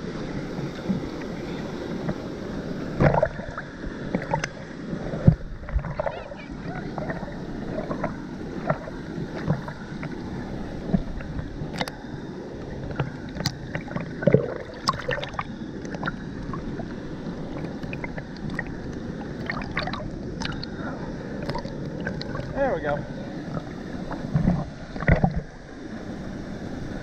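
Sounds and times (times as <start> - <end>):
water sloshing and lapping: 0.0 - 26.0.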